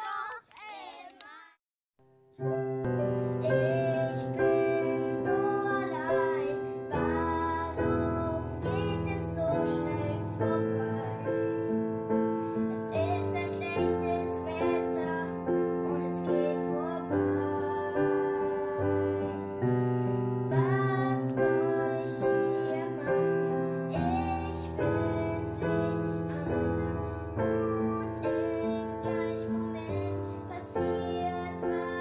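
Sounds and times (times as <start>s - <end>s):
child singing: 0.0s - 1.6s, 3.4s - 11.8s, 12.6s - 32.0s
piano chords: 2.3s - 32.0s.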